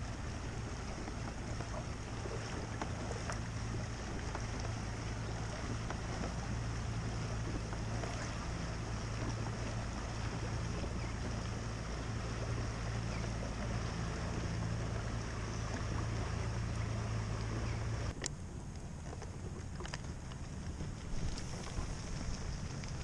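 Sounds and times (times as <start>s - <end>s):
water wash: 0.0s - 18.2s, 19.1s - 23.0s
boat motor hum: 0.0s - 23.0s
wind noise: 17.2s - 23.0s.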